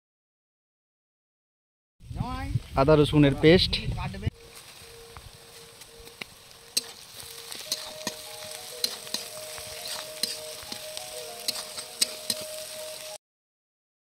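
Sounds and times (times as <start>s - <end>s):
onions sizzling in hot oil: 4.4s - 13.2s
spatula scraping metal pan: 6.7s - 13.0s.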